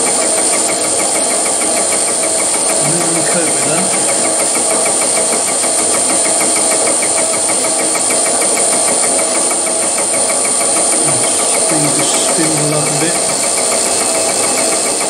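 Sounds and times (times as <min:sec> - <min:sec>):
faint regular ticking: 0:02.5 - 0:15.0
milling machine cutting metal: 0:09.4 - 0:15.0.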